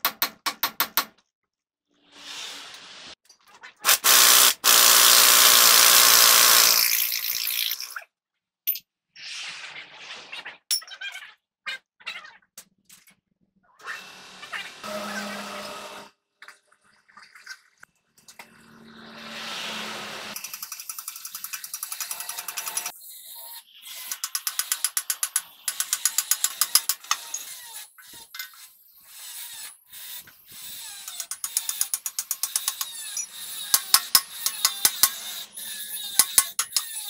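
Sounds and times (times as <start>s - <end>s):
ratchet wrench clicking: 20.4s - 23.0s, 24.1s - 27.4s, 31.0s - 37.0s.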